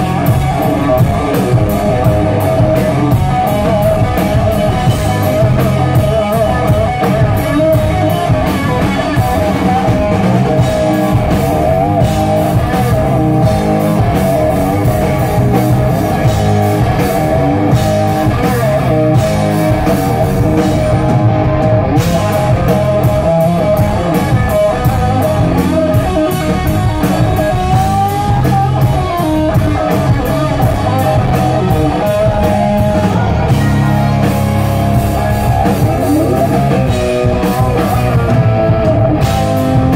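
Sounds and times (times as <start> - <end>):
bending lead guitar lines: 0.0 - 39.9
live rock band playing: 0.0 - 39.9.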